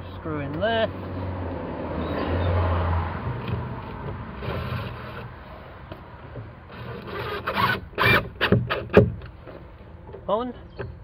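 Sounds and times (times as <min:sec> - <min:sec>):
rubbing and scraping handling noise: 0:03.4 - 0:10.3
sharp knocks: 0:08.0 - 0:09.3.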